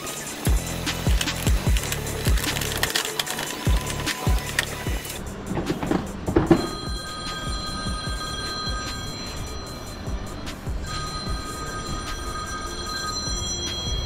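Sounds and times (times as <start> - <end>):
phone ringtone ringing: 6.4 - 14.0.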